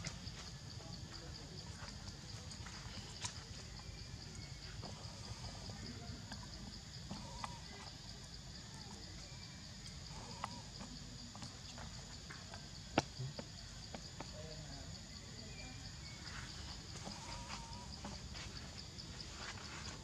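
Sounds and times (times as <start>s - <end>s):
pulsing insect drone: 0.0s - 20.0s
high animal calls: 17.0s - 18.2s.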